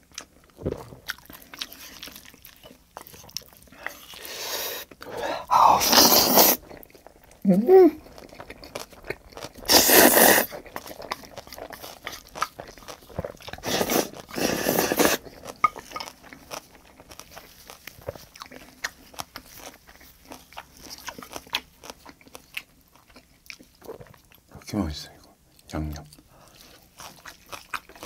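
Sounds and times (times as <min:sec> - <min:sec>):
wet chewing with smacks: 0:00.0 - 0:05.2, 0:06.0 - 0:24.6, 0:25.2 - 0:28.0
slurping noodles: 0:04.2 - 0:06.7, 0:09.6 - 0:10.6, 0:13.6 - 0:15.2.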